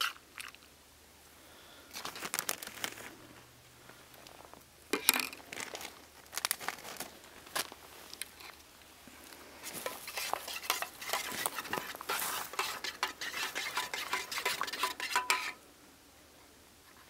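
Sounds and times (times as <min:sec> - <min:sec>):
spoon scraping metal cookware: 0:09.8 - 0:15.6.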